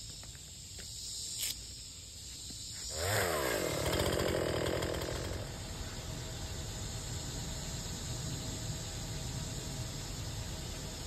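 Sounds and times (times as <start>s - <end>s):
chainsaw revving: 2.9s - 5.7s.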